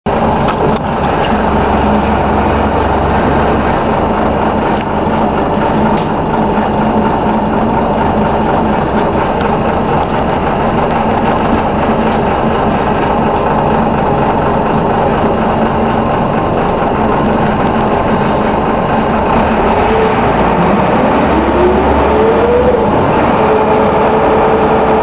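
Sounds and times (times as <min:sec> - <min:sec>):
bus diesel engine drone: 0:00.0 - 0:25.0.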